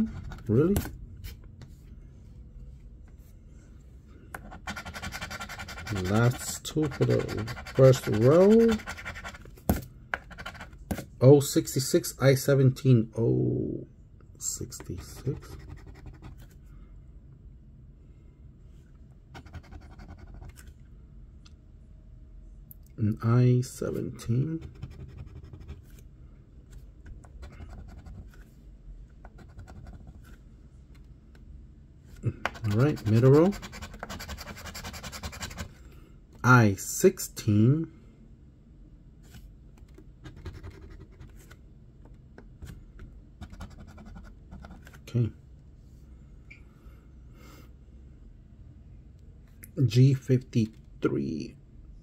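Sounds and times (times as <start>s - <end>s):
faint low hum: 0.0s - 52.0s
coin scratching lottery ticket: 4.4s - 9.5s, 32.5s - 35.7s.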